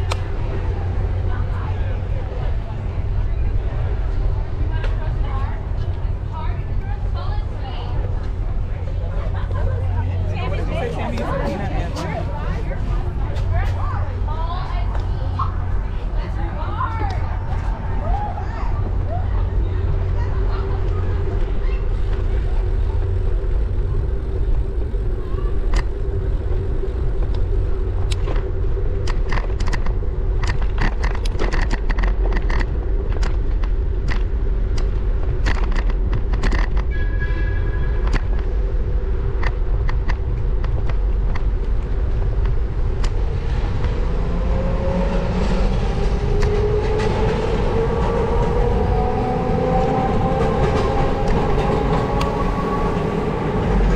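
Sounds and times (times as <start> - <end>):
low hum: 0.0 - 53.9
wind on microphone: 0.0 - 53.9
bicycle clicks and rattles: 27.2 - 37.0.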